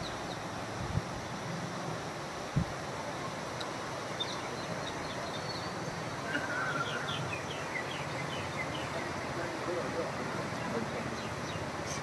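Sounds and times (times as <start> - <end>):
small birds chirping: 0.0 - 0.6, 3.2 - 12.0
flooded river rushing: 0.0 - 12.0
wind on microphone: 0.7 - 1.3, 2.5 - 2.8.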